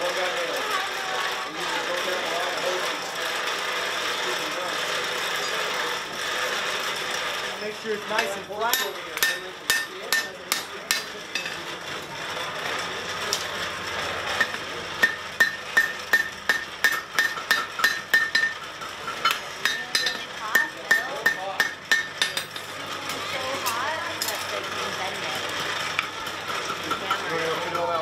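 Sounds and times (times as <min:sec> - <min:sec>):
hammer ringing on anvil: 0:08.2 - 0:11.6, 0:14.4 - 0:22.7.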